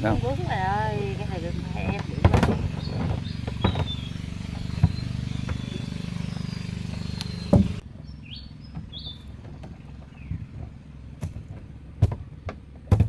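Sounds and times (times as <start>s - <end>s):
sharp knocks and clicks: 1.8s - 5.8s, 7.2s - 7.8s, 8.7s - 13.0s.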